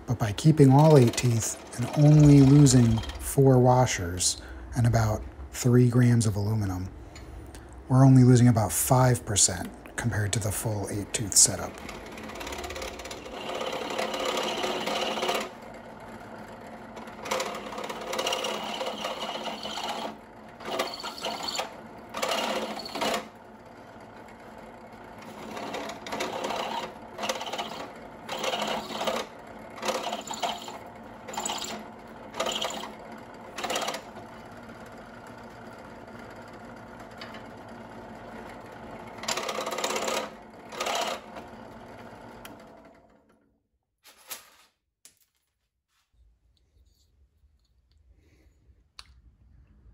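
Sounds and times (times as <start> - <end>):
drill press running: 0.0 - 5.1, 6.4 - 43.5.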